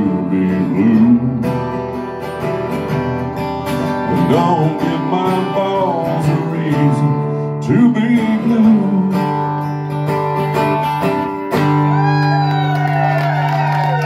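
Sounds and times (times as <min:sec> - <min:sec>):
man singing: 0:00.0 - 0:02.0, 0:03.9 - 0:09.8
acoustic guitars strumming: 0:00.0 - 0:12.4.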